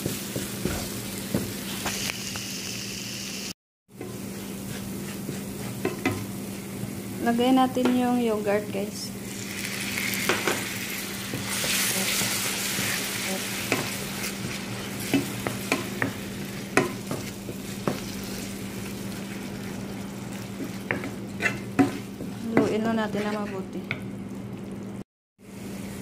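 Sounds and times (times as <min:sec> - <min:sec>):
yogurt sizzling in hot oil: 0:00.0 - 0:07.2, 0:09.2 - 0:22.5
wooden spoon tapping pan: 0:16.8 - 0:18.0.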